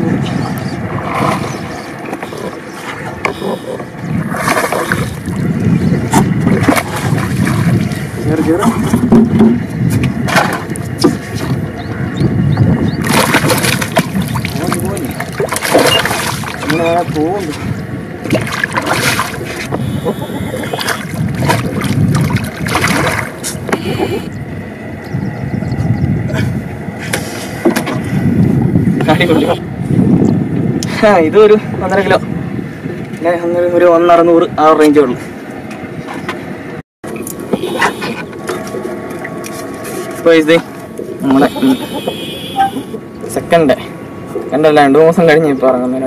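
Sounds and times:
fish thrashing and splashing: 0:00.8 - 0:09.2, 0:13.0 - 0:23.7.

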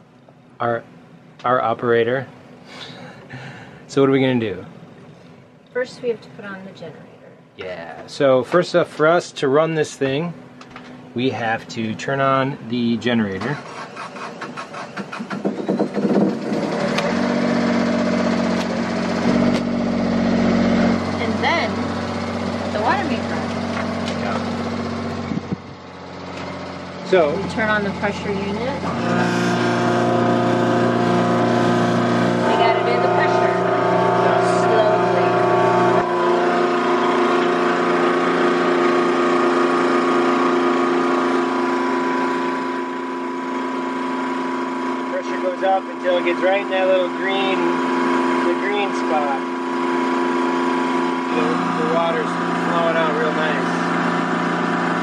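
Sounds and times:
generator engine cranking and running: 0:12.7 - 0:55.0.

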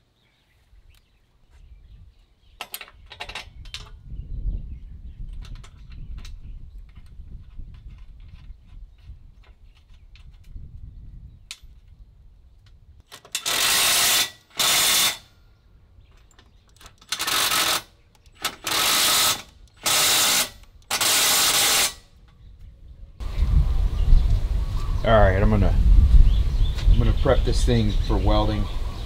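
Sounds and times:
cordless drill drilling metal: 0:13.2 - 0:15.3, 0:17.1 - 0:22.0.

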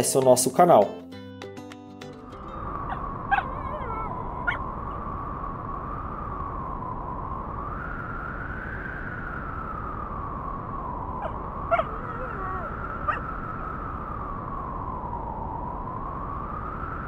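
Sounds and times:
wavering high tone: 0:02.4 - 0:05.2, 0:11.2 - 0:13.4
short sharp animal calls: 0:03.3 - 0:04.6, 0:11.2 - 0:13.2.

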